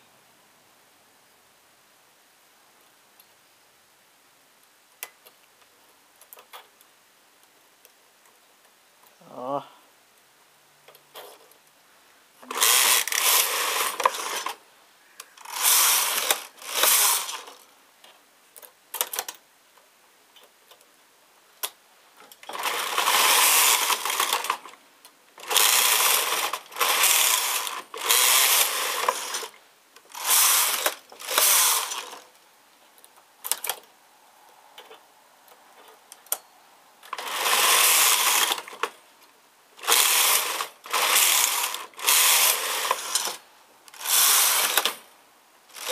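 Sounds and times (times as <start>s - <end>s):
knitting machine carriage rattling: 12.4s - 14.6s, 15.4s - 17.6s, 22.2s - 24.7s, 25.4s - 32.2s, 37.1s - 38.9s, 39.8s - 43.4s, 44.0s - 45.0s.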